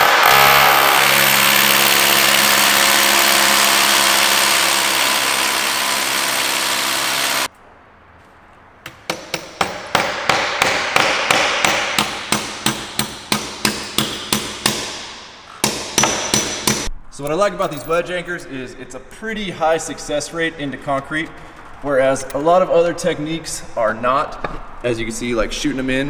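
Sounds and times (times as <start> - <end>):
rotary hammer drilling concrete: 0.0 - 7.5
hammer striking anchor: 8.8 - 16.9.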